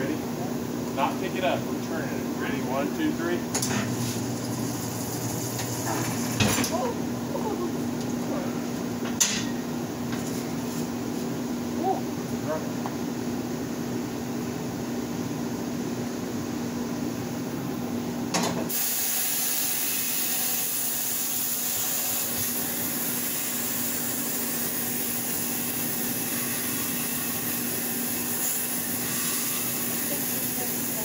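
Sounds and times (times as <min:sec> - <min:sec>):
steady hum: 0:00.0 - 0:18.4.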